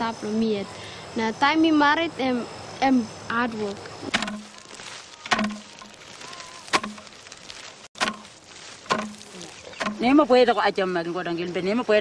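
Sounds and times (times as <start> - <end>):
digging stick thudding into soil: 4.0 - 6.0, 6.6 - 7.3, 8.0 - 10.2.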